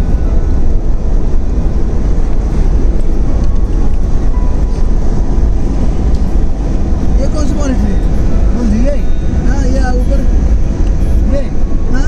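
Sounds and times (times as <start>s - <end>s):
road and engine rumble in car: 0.0s - 12.0s.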